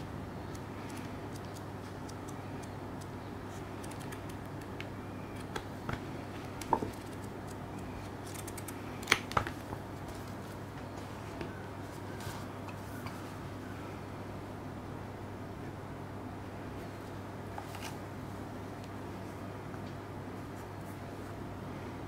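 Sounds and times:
paper pages rustling: 6.6 - 11.1, 17.6 - 18.0.

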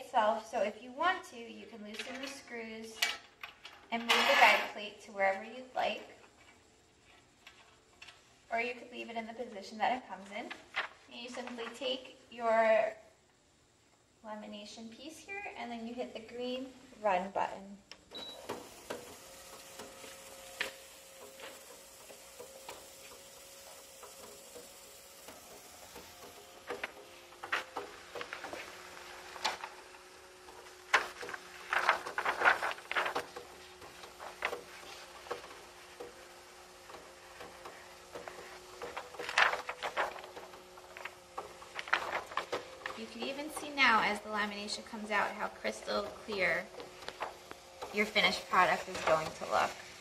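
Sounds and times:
laminator motor hum: 18.0 - 50.0
laminating film crackling: 18.5 - 50.0.

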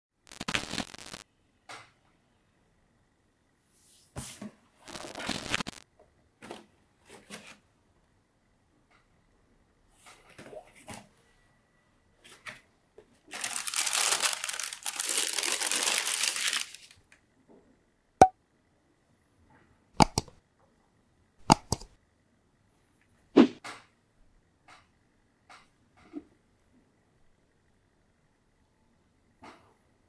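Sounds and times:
tissue paper crinkling: 13.3 - 17.0.

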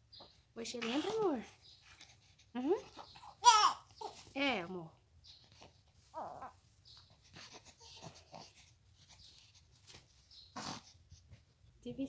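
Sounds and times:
baby cooing: 2.9 - 4.3, 6.1 - 6.6, 7.3 - 8.7.

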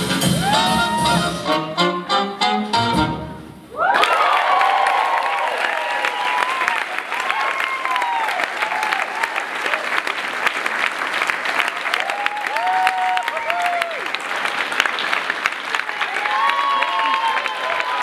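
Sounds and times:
people cheering and whooping: 0.2 - 1.4, 3.7 - 9.9, 11.6 - 14.2, 15.8 - 18.0
audience clapping: 3.8 - 18.0.

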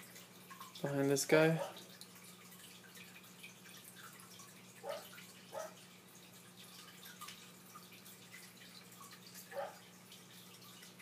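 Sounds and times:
aquarium water trickling and dripping: 0.0 - 11.0.

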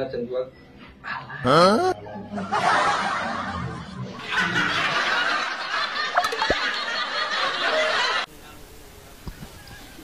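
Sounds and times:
group laughter: 1.4 - 8.3.

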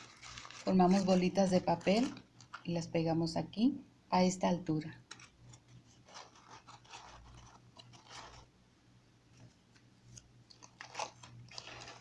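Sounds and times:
newspaper crinkling: 0.0 - 2.8, 5.0 - 8.5, 9.7 - 12.0.

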